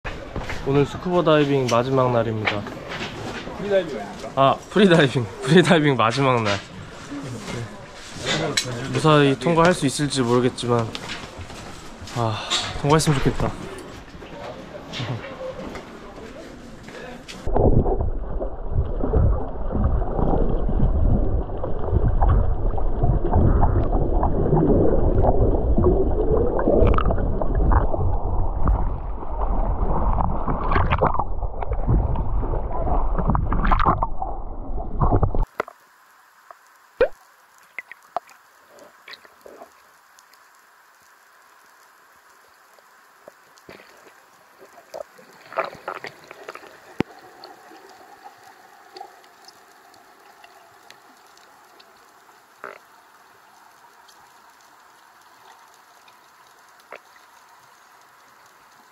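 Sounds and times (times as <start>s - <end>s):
underwater hush: 17.4s - 35.7s, 43.1s - 54.4s
water gurgling and rushing: 17.4s - 35.7s, 43.3s - 53.7s
faint clicks: 36.4s - 58.9s.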